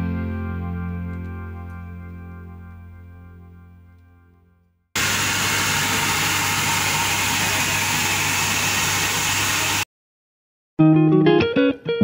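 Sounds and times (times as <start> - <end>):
steam locomotive letting off steam: 5.0 - 9.8.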